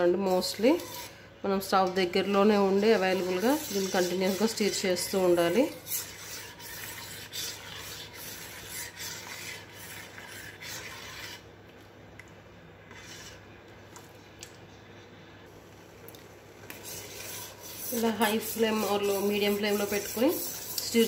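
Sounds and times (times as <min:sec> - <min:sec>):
spoon scraping steel pot: 0:02.3 - 0:11.4, 0:16.8 - 0:21.0.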